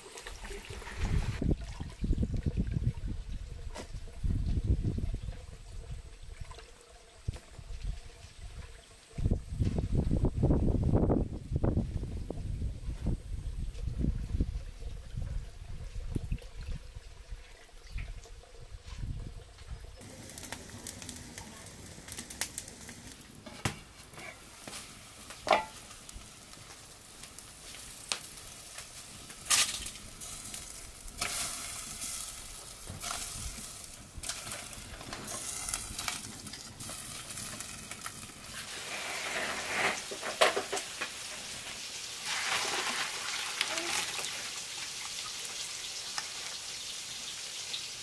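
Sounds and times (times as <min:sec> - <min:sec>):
food sizzling in a pan: 0:20.0 - 0:48.0.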